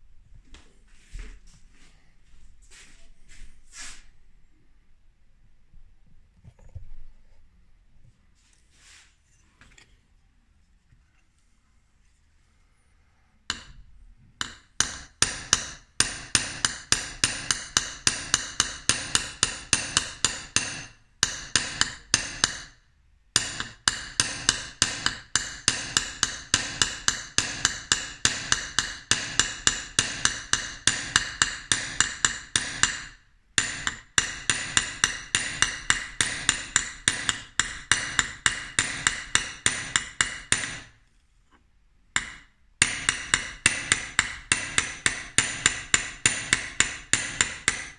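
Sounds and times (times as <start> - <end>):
small hammer tapping metal: 13.5 - 13.8, 14.4 - 22.8, 23.4 - 41.0, 42.2 - 47.9.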